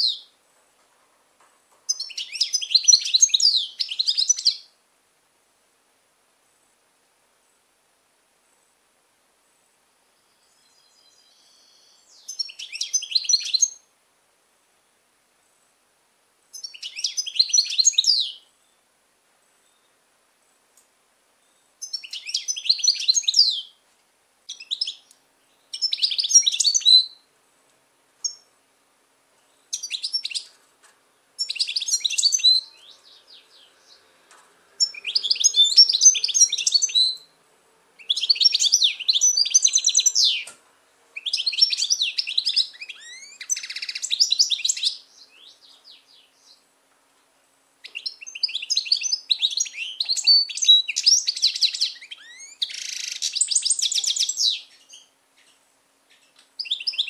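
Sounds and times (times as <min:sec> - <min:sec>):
goldfinch twittering song: 0:01.9 - 0:04.7, 0:10.4 - 0:13.8, 0:16.5 - 0:18.4, 0:21.8 - 0:23.8, 0:24.5 - 0:27.2, 0:31.4 - 0:34.0, 0:34.8 - 0:37.3, 0:38.0 - 0:40.5, 0:41.2 - 0:46.6, 0:47.8 - 0:57.0.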